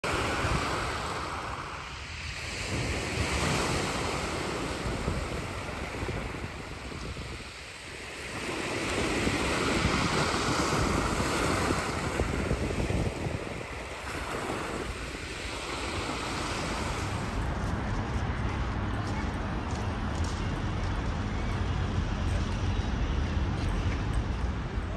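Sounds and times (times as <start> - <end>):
waves breaking on shingle beach: 0.0 - 18.2.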